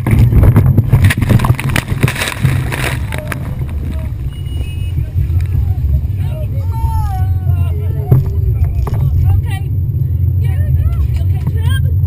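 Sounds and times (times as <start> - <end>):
rush of wind and spray: 0.0 - 6.2
boat engine low rumble: 0.0 - 12.0.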